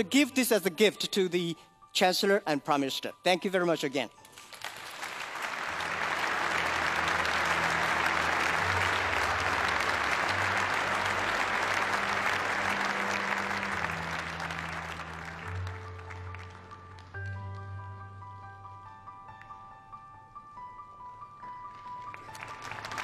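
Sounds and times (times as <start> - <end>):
audience applauding: 4.4 - 17.6, 21.8 - 23.0.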